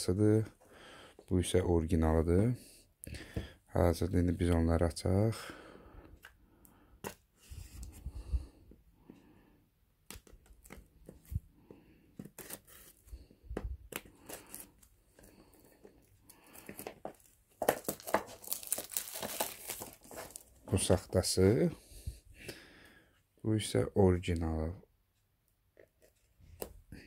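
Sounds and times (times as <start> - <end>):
knife scraping plastic wrapping: 12.2 - 13.0, 16.6 - 20.5
plastic film crinkling and tearing: 16.4 - 21.0.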